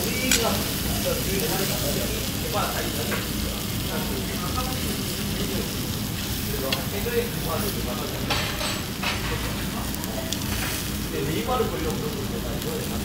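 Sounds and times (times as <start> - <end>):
ribs sizzling on a charcoal grill: 0.0 - 13.0
tongs and scissors clicking: 0.2 - 0.6.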